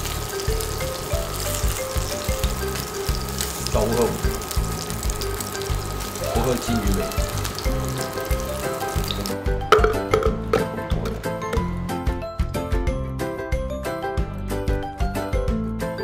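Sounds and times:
fish sizzling in a frying pan: 0:00.0 - 0:10.3
background music with steady beat: 0:00.0 - 0:16.0.

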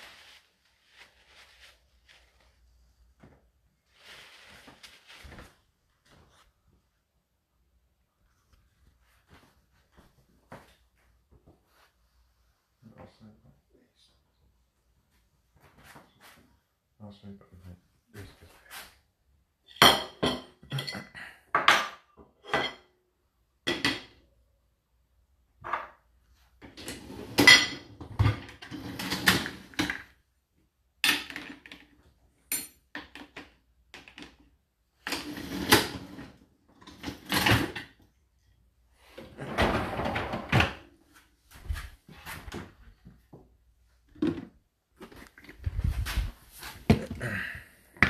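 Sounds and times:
dishes clattering in dishwasher racks: 0:19.8 - 0:21.1, 0:21.7 - 0:22.9, 0:26.7 - 0:30.0.

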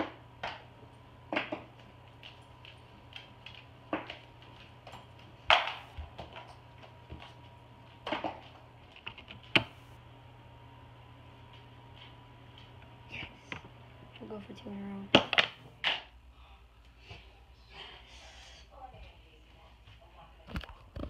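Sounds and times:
faint electrical hum: 0:00.0 - 0:21.0.

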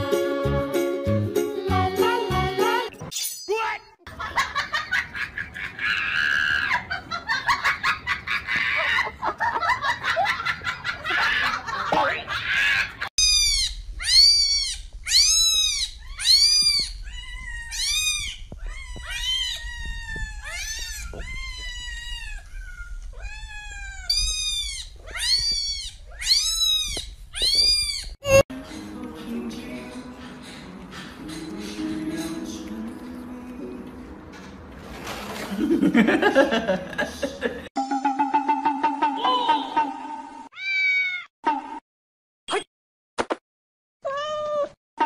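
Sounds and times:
cats meowing: 0:12.4 - 0:28.4, 0:40.6 - 0:41.3, 0:44.0 - 0:44.8.

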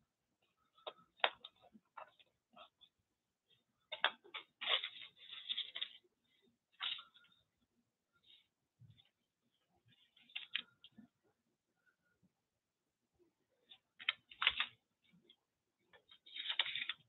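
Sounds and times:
hands rustling paper scraps: 0:16.2 - 0:17.0.

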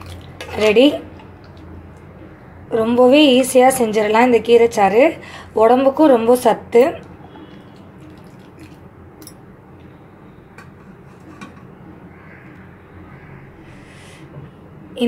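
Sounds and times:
low background noise: 0:00.0 - 0:15.0.

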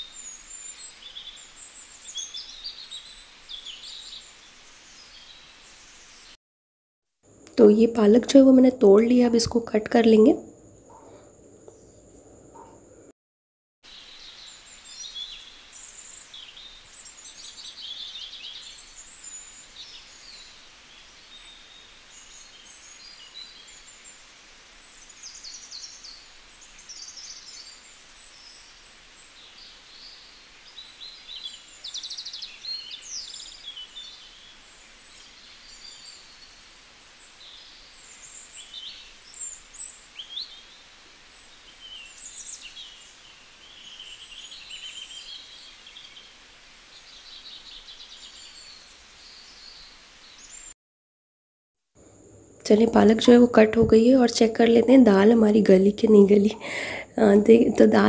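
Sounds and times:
background hiss: 0:00.0 - 0:06.4, 0:13.9 - 0:50.8, 0:52.0 - 0:58.0
birds chirping: 0:07.5 - 0:13.1, 0:52.0 - 0:58.0.

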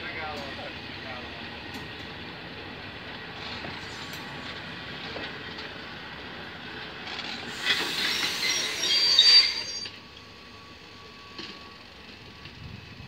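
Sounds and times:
train coaches rolling past: 0:00.0 - 0:13.0
metallic wheel squeal: 0:07.5 - 0:10.0.

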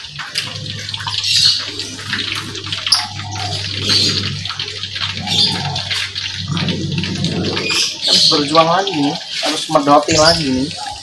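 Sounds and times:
low steady hum: 0:00.0 - 0:08.1
fritters deep-frying in oil: 0:00.0 - 0:11.0.

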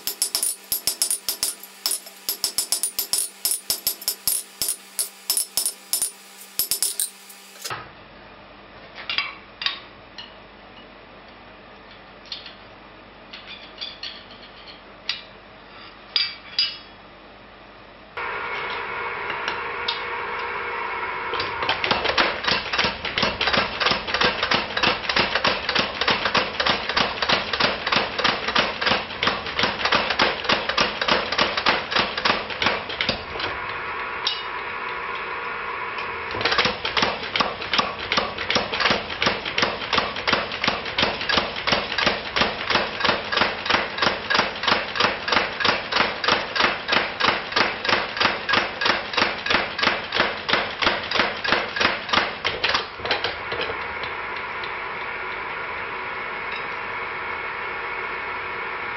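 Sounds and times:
power hammer striking hot steel: 0:00.0 - 0:07.7, 0:34.2 - 0:35.2, 0:36.0 - 0:52.5.

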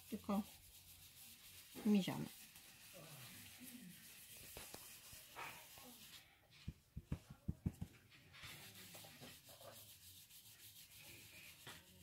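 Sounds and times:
brush scrubbing over stencil: 0:00.0 - 0:12.0
soft thuds: 0:06.6 - 0:08.2.

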